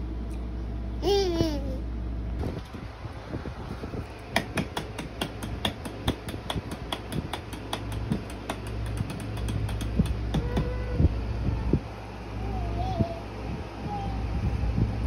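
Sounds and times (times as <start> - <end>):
hands tapping wooden rungs: 4.3 - 10.7.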